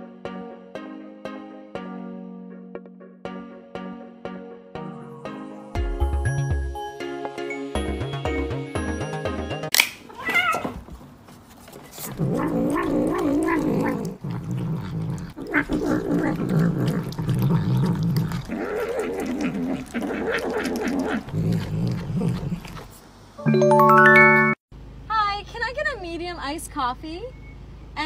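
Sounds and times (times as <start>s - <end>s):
cat growling yowls: 10.1s - 10.8s, 12.1s - 22.9s
cat high call: 10.1s - 10.8s.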